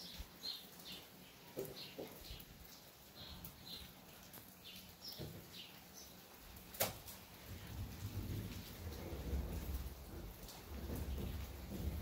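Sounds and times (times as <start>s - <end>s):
birds chirping: 0.0s - 6.8s
low rumbling thunder: 7.5s - 12.0s.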